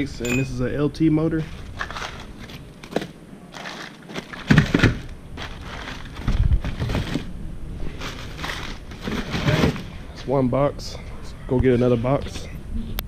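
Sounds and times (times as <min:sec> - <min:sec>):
cardboard boxes rustling and knocking: 0:01.7 - 0:07.3, 0:08.0 - 0:09.9.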